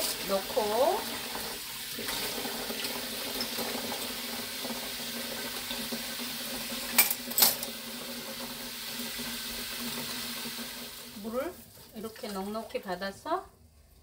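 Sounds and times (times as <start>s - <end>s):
tap water running into steel bowl: 0.0s - 12.8s.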